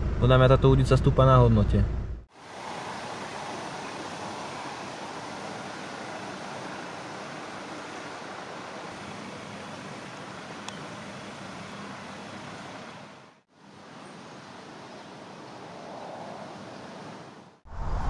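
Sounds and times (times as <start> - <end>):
river water rushing: 2.3 - 17.5
small click: 10.6 - 10.8.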